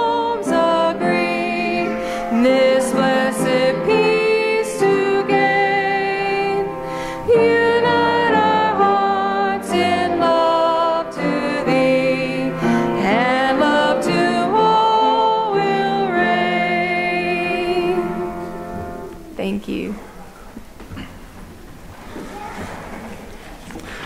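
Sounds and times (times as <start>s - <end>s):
choir and congregation singing hymn: 0.0s - 19.1s.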